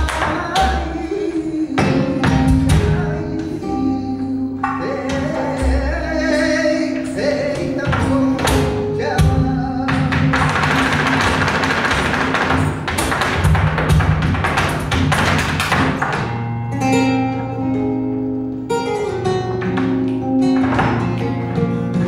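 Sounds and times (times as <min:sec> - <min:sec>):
man singing: 0:00.0 - 0:11.2
flamenco guitar: 0:00.0 - 0:22.0.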